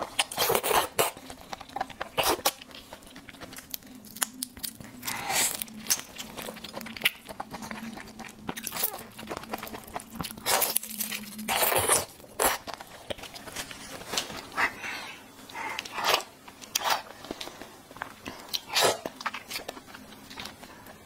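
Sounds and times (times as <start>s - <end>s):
wet smacking and chewing: 0.0s - 14.5s
faint low hum: 0.0s - 21.0s.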